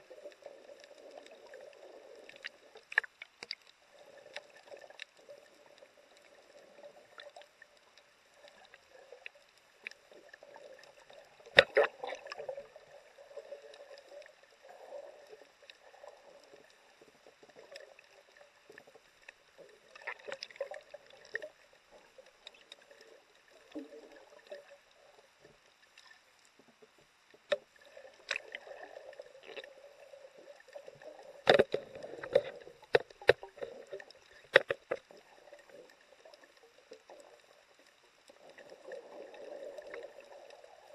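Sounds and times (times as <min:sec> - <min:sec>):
underwater rush of water: 0:00.0 - 0:40.9
sharp underwater clicks and knocks: 0:11.4 - 0:12.4, 0:27.4 - 0:28.6, 0:31.4 - 0:35.2.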